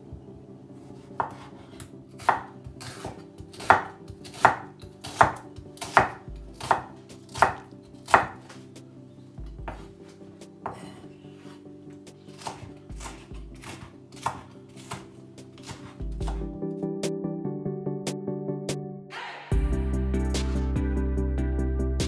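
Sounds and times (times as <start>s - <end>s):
knife chopping on wooden board: 1.2s - 8.6s, 9.6s - 9.9s, 10.6s - 11.5s, 12.3s - 16.5s.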